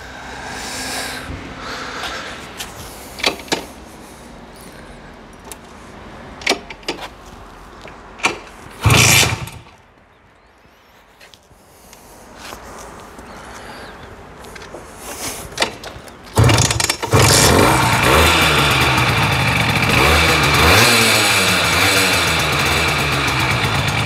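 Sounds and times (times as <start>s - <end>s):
moped two-stroke engine revving: 8.2s - 9.7s, 16.4s - 24.0s.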